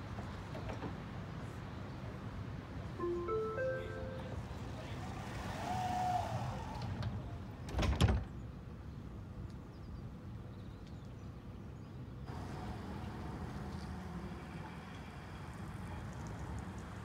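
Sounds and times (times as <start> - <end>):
tram humming: 2.2 - 5.7, 12.3 - 17.0
tram doors banging shut: 6.9 - 8.4.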